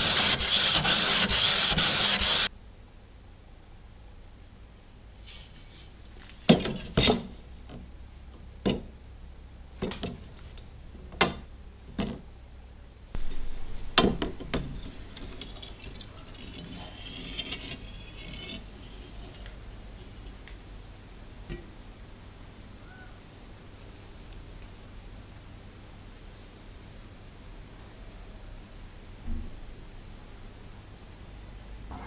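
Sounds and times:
low steady hum: 0.0 - 32.0
faint scraping: 14.8 - 20.2.

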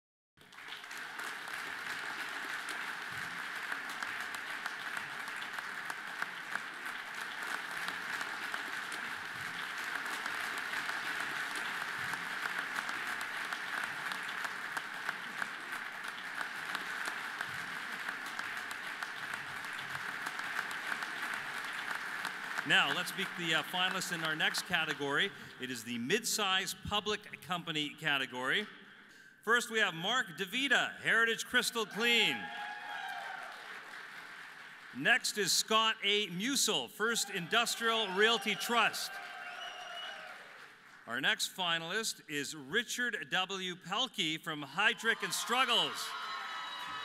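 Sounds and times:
audience applauding: 0.4 - 25.9, 31.5 - 41.2, 44.8 - 47.0.

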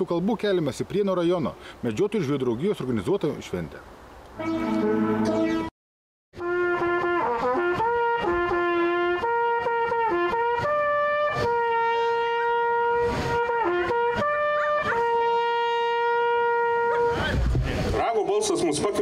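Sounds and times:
brass hunting horn fanfare: 4.4 - 5.7, 6.4 - 17.4.

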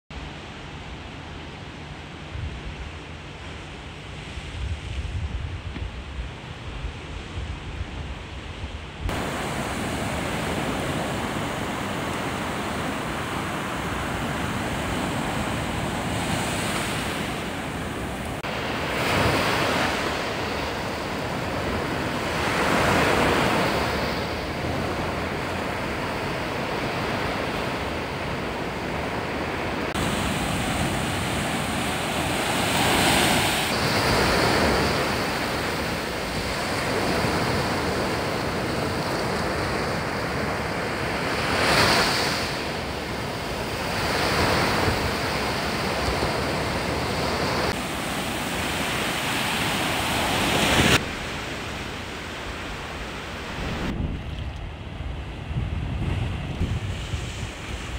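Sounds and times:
waves breaking on a beach: 0.2 - 57.9.

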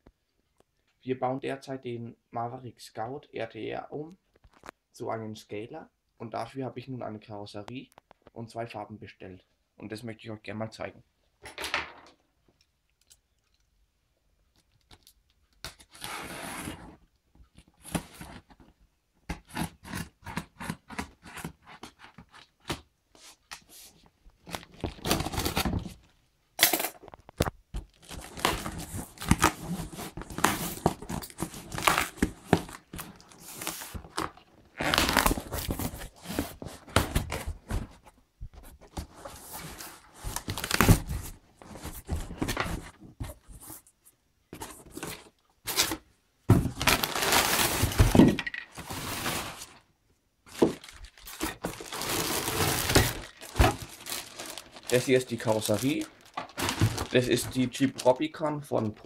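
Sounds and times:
cardboard scraping and rustling: 28.0 - 43.8, 44.6 - 49.8, 50.5 - 57.8
packing tape tearing: 33.5 - 36.3, 50.6 - 57.3.

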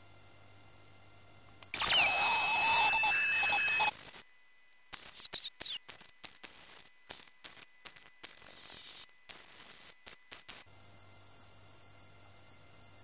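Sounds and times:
dental scaler high-pitched whistle: 1.8 - 4.2, 4.9 - 10.7.

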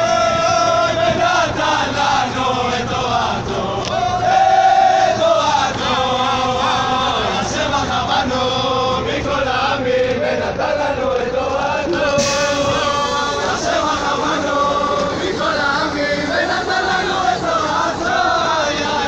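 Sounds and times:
crowd of men singing: 0.0 - 19.0
brief hiss: 12.2 - 14.4.

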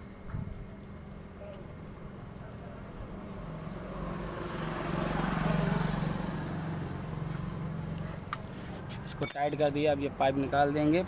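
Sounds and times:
vehicle engine passing: 3.8 - 8.0.

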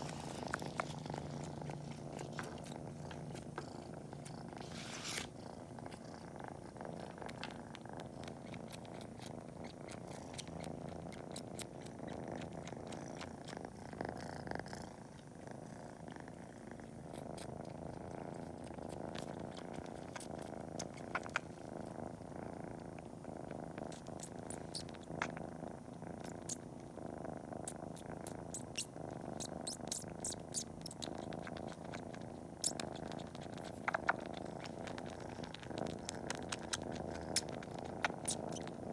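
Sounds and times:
kitten purring: 0.0 - 38.9
wet suckling clicks: 28.2 - 38.8.

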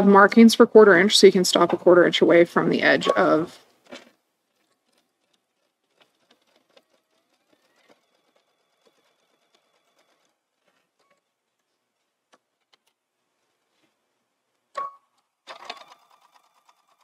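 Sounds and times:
sewing machine stitching: 3.6 - 11.3, 15.4 - 17.0
sewing machine motor whine: 5.6 - 11.2, 15.5 - 17.0.

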